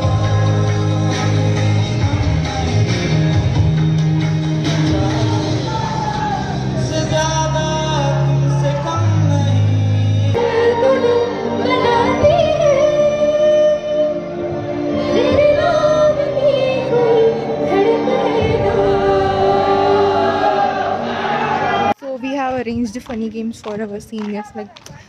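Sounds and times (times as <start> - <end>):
backing music: 0.0 - 22.0
woman singing into a microphone: 10.4 - 14.2.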